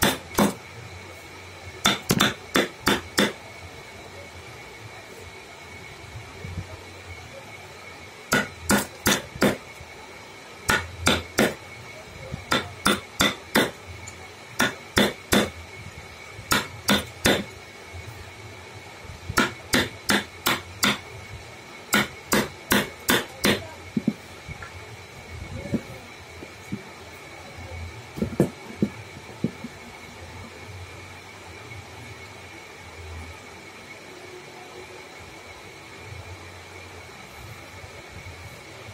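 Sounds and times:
hammer striking chisel into wood: 0.0 - 0.6, 1.8 - 3.4, 8.3 - 9.6, 10.7 - 11.6, 12.5 - 13.8, 14.6 - 15.6, 16.5 - 17.5, 19.4 - 21.0, 21.9 - 23.6.

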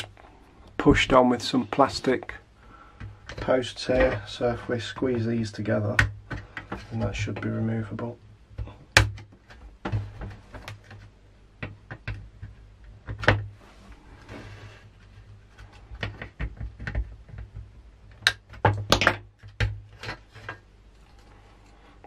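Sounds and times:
plastic clicks and knocks: 8.6 - 13.5, 15.9 - 20.6
short scrape: 13.7 - 14.8.

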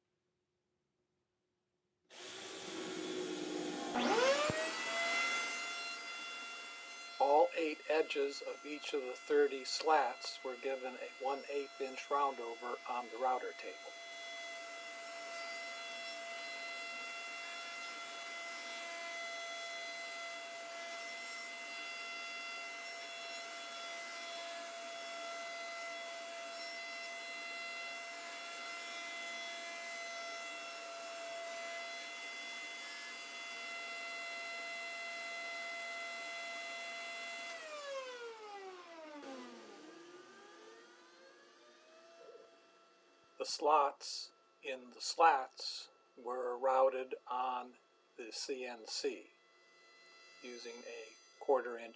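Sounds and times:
router table running: 2.1 - 43.3, 49.4 - 51.6
motor whine spinning down: 2.2 - 12.4, 13.8 - 43.4.

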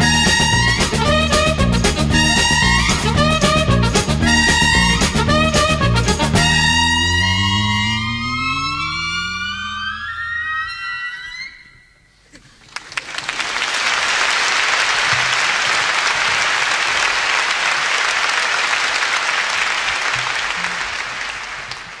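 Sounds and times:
audience applauding: 12.6 - 22.0.

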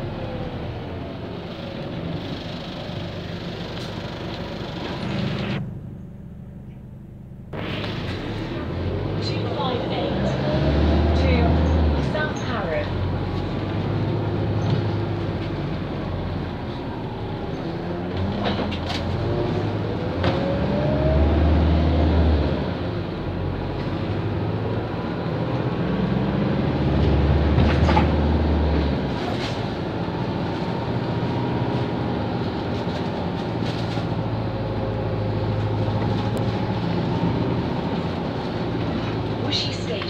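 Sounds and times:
bus engine rumble: 0.0 - 40.0
road noise: 0.0 - 40.0
rising whine: 3.2 - 11.0.

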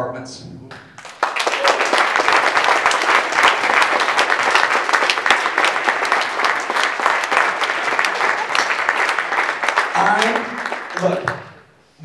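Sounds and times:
audience applauding: 1.0 - 11.7.

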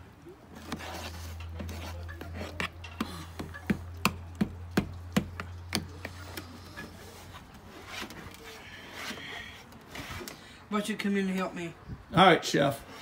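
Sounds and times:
batter scraping and stirring: 0.6 - 3.0.

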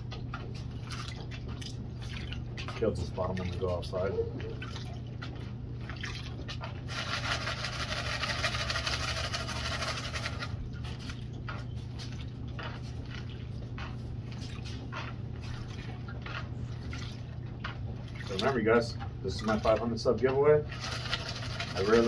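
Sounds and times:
muddy water pouring and splashing: 0.0 - 13.6, 14.2 - 22.0.

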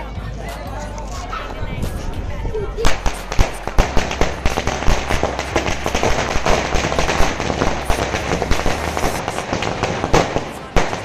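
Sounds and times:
firecrackers crackling: 2.8 - 11.0.

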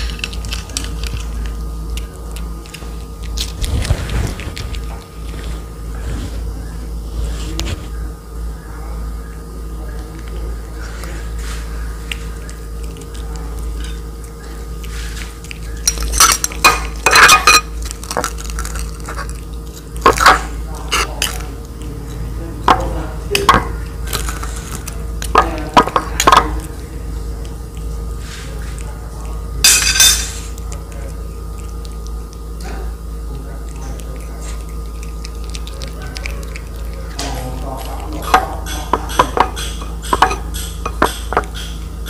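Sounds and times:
cat chewing and licking: 0.0 - 42.0
steady low hum: 0.0 - 42.0.

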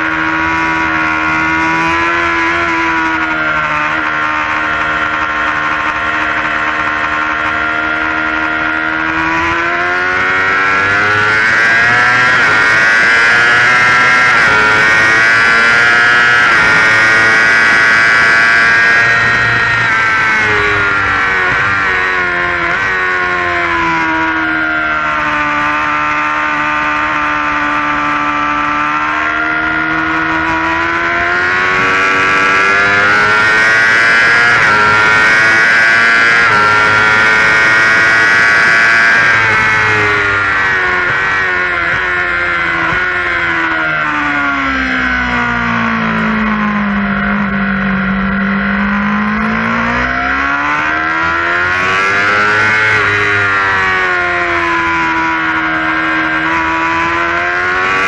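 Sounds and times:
motorcycle engine at high revs: 0.0 - 58.0.

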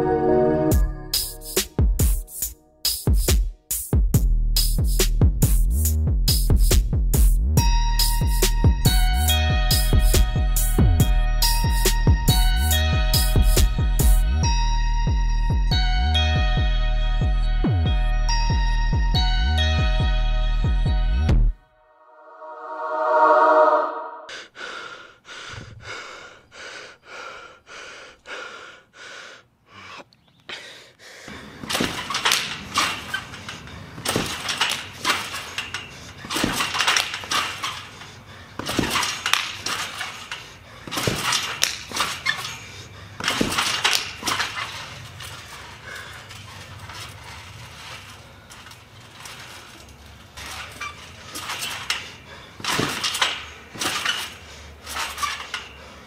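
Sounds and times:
trampoline springs jangling: 31.5 - 56.0
jumper landing on trampoline: 31.6 - 49.8, 50.4 - 55.8.

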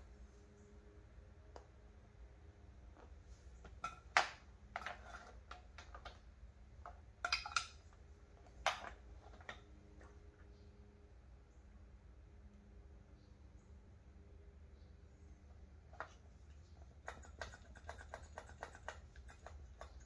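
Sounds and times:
clinks and knocks of tools: 6.8 - 10.2.

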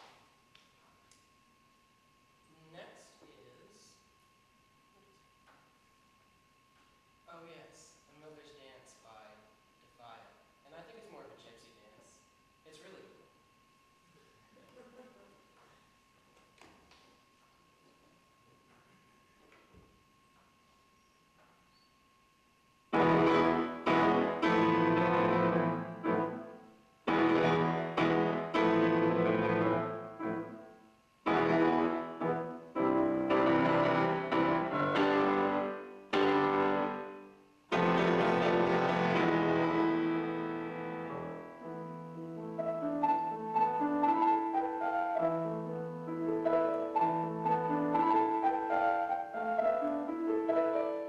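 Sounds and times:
grand piano chords: 22.9 - 51.0.

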